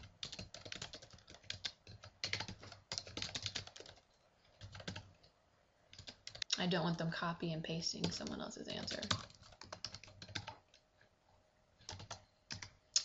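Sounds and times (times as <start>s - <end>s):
typing on computer keyboard: 0.0s - 5.3s, 5.9s - 6.5s, 8.0s - 10.8s, 11.8s - 13.0s.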